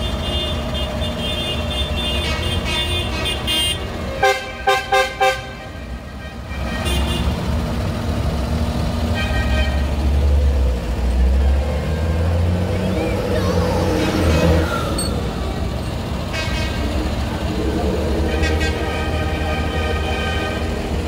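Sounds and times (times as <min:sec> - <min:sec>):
vehicle horn toots: 0:00.0 - 0:07.4, 0:09.1 - 0:09.9, 0:18.3 - 0:20.9
tractor diesel engine droning: 0:00.0 - 0:21.0.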